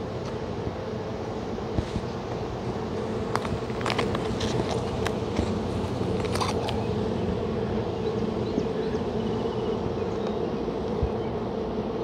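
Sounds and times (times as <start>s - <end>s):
honeybees buzzing: 0.0s - 12.0s
hive tool clicks and scrapes: 3.3s - 6.8s.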